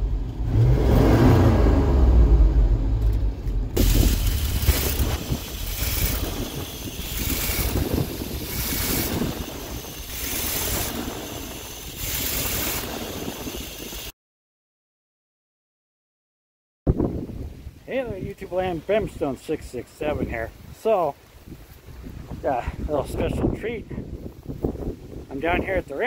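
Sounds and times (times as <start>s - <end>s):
truck engine running: 2.4s - 14.1s
hiss: 3.8s - 14.1s
wind on microphone: 3.8s - 14.1s, 16.9s - 18.4s, 20.1s - 26.0s.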